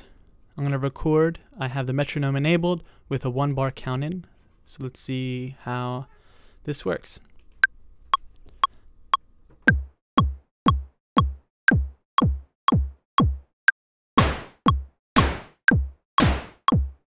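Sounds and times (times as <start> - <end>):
synthesized kick drum thud: 9.7 - 13.5, 14.2 - 17.0
noisy synthesized snare: 14.2 - 17.0.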